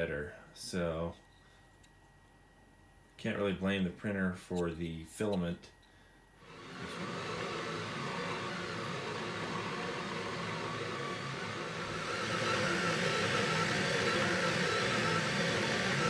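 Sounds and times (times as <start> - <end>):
steady printer whir: 6.4 - 16.0.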